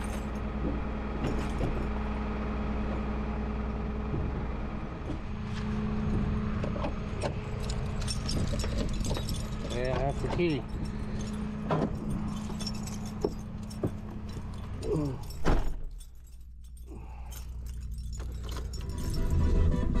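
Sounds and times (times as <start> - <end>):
keys jangling: 0.0 - 0.4, 7.2 - 20.0
engine hum: 0.0 - 20.0.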